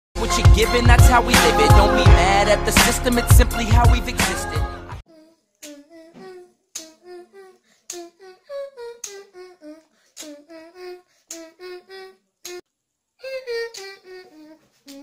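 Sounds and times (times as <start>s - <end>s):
boy humming a tune: 5.1s - 12.6s, 13.2s - 15.0s
beatboxed clicks: 5.6s - 8.2s, 8.9s - 11.6s, 13.6s - 14.0s.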